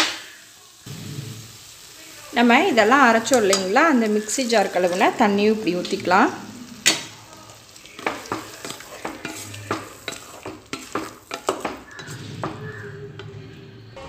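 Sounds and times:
wooden spatula scraping metal pot: 7.9 - 13.5.

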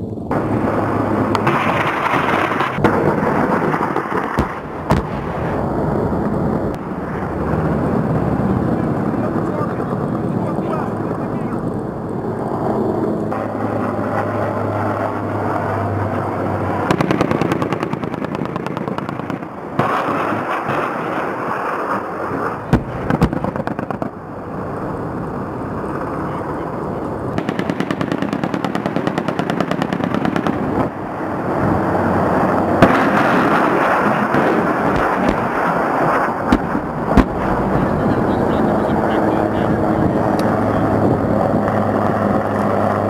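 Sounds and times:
helicopter rotor and engine: 0.0 - 43.0
rapid automatic gunfire: 27.4 - 30.6.

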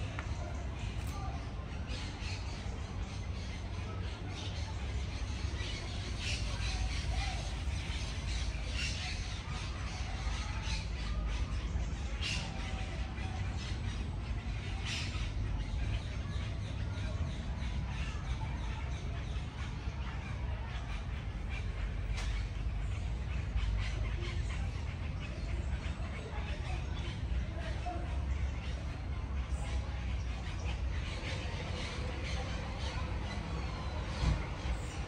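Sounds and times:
birds chirping: 0.0 - 35.0.

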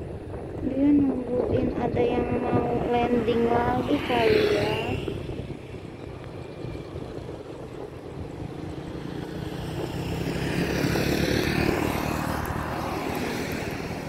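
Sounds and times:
motorcycle passing: 0.0 - 14.0
car driving past: 8.4 - 14.0.

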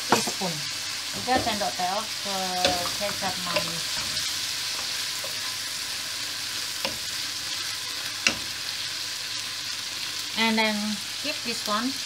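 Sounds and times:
food sizzling in a frying pan: 0.0 - 12.0
spoon knocking against pan: 1.2 - 1.8, 2.6 - 5.5, 6.8 - 8.7
wooden spoon stirring: 2.6 - 8.9.

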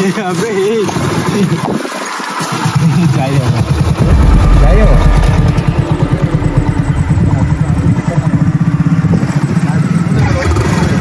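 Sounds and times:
motorcycle engine running: 3.4 - 11.0.

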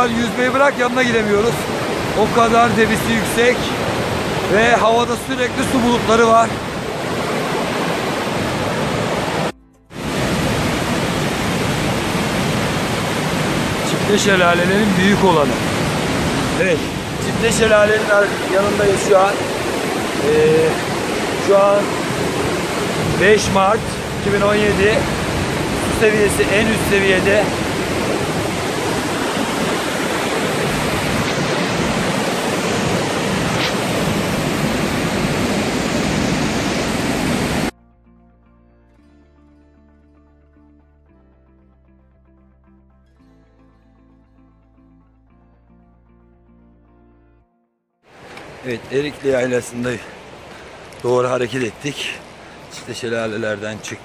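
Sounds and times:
waterfall rushing: 0.0 - 37.7, 48.1 - 54.0.

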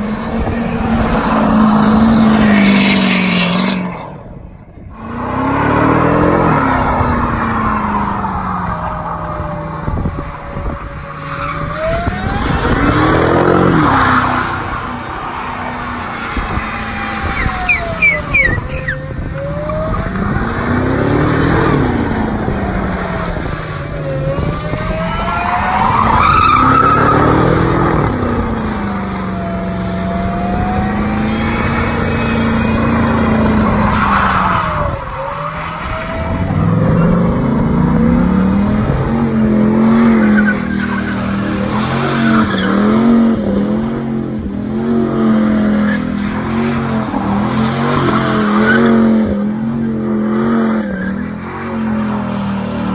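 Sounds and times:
truck engines revving hard: 0.0 - 52.9
tyres squealing on pavement: 10.6 - 21.1, 24.0 - 30.3, 30.9 - 37.4, 40.1 - 43.2, 49.8 - 52.2.

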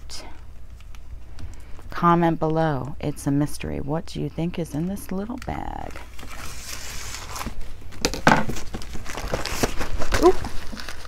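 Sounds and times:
plastic bag crinkling: 4.6 - 11.0.

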